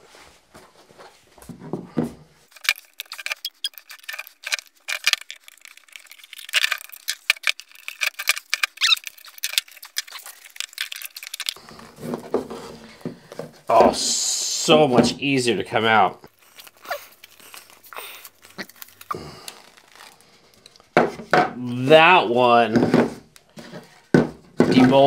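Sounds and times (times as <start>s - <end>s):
metal scraping hard plastic: 2.5s - 13.7s.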